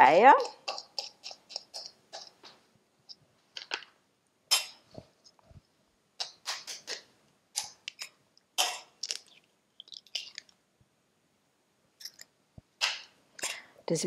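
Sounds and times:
eggs cracking on metal: 0:00.4 - 0:02.5, 0:07.6 - 0:10.5.

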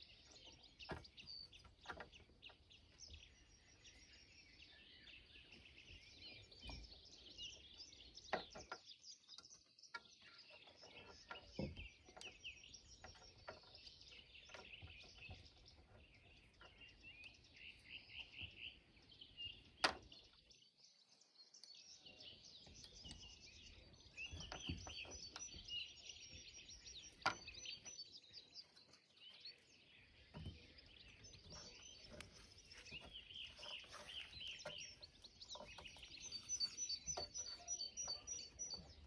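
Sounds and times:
small birds chirping: 0:00.0 - 0:39.0
high bird trill: 0:33.0 - 0:39.0.

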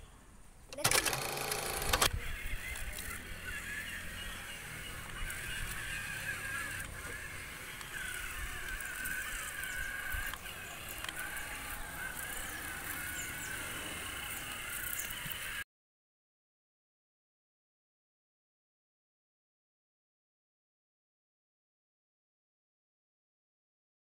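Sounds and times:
toy car gear motors whining: 0:00.7 - 0:15.6.

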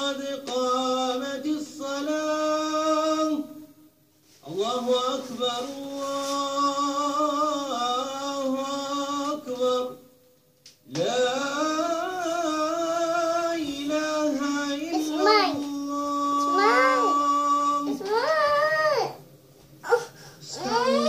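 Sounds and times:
person chanting call to prayer: 0:10.9 - 0:19.2, 0:20.5 - 0:21.0.

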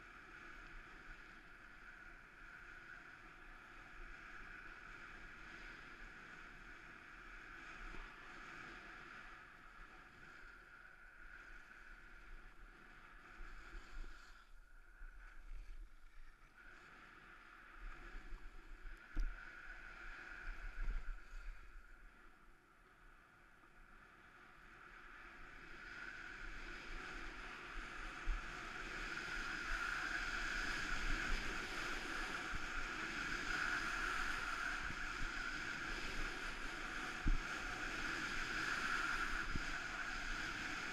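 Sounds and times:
skis sliding on snow: 0:26.0 - 0:40.9
wind on microphone: 0:26.1 - 0:40.9.

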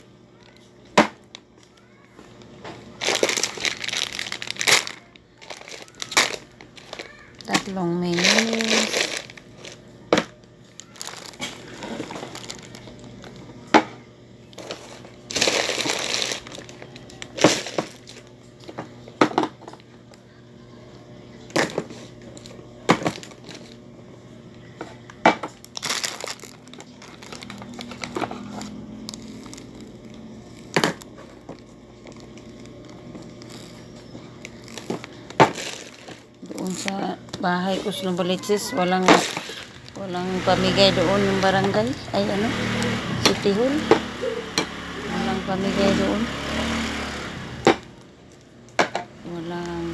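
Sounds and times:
plastic packets crinkling: 0:01.4 - 0:13.5, 0:14.6 - 0:18.3, 0:25.6 - 0:42.1.

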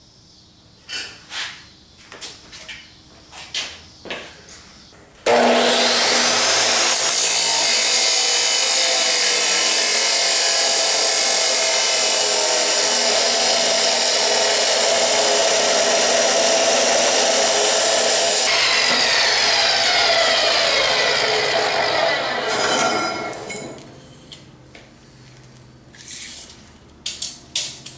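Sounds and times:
chop saw cutting steel: 0:05.3 - 0:23.8.

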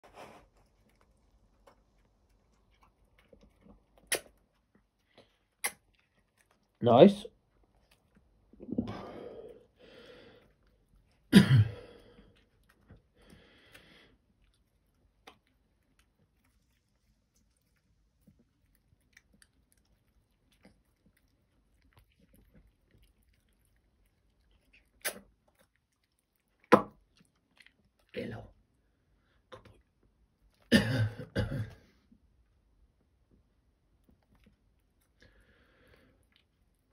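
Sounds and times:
dog licking and chewing: 0:00.1 - 0:06.8, 0:07.4 - 0:08.6, 0:12.0 - 0:28.8.

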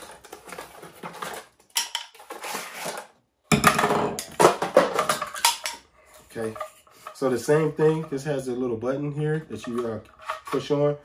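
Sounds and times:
cardboard and plastic rustling: 0:00.0 - 0:03.2
plastic tool clattering on wood: 0:03.5 - 0:05.8.

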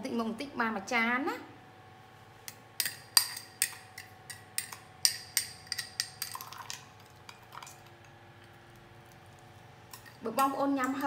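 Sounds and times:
spoon clinking against glass jar: 0:02.8 - 0:06.8.

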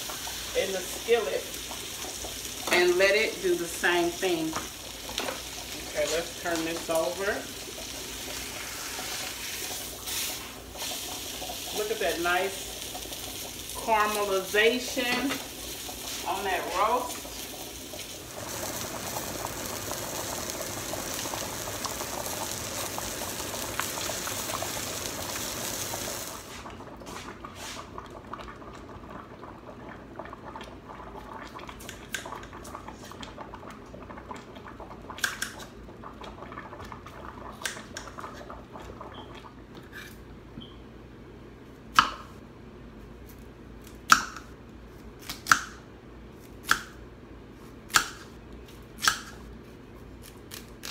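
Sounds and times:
meat sizzling in a skillet: 0:00.0 - 0:26.5.

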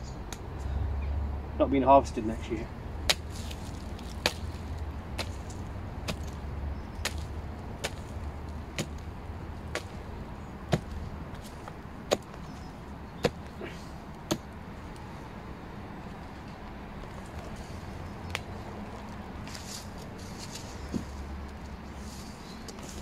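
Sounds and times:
low steady rumble: 0:00.0 - 0:23.0
hoe chopping into frozen soil: 0:03.1 - 0:09.0, 0:09.6 - 0:10.0, 0:10.7 - 0:14.5.

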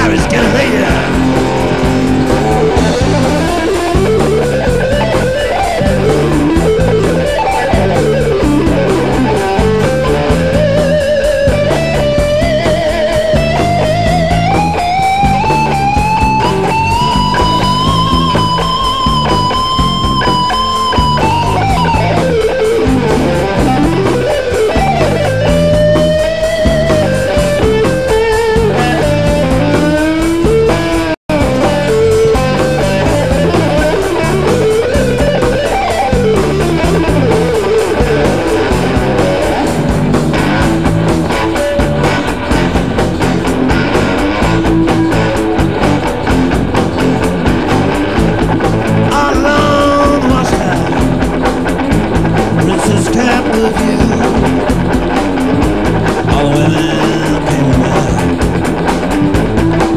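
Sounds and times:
bass guitar: 0:00.0 - 0:59.9
drums: 0:00.0 - 0:59.9
electric guitar solo: 0:00.0 - 0:59.9.

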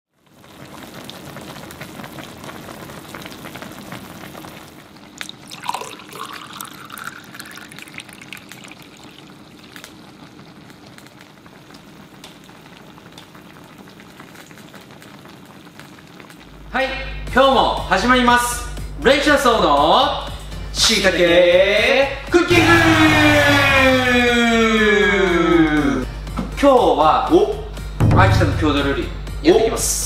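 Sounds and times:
hot pot bubbling: 0:00.1 - 0:17.1
liquid glugging into a glass: 0:05.2 - 0:09.4.

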